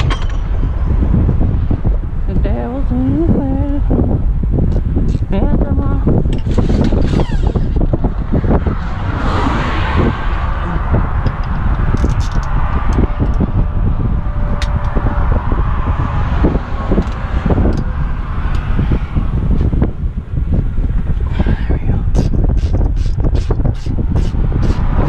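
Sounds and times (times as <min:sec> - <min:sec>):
low traffic rumble: 0:00.0 - 0:25.0
vehicles passing: 0:00.0 - 0:25.0.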